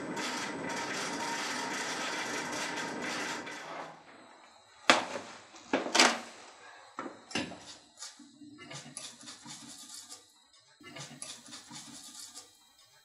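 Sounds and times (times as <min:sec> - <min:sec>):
scraping grinding noise: 0:00.0 - 0:04.2.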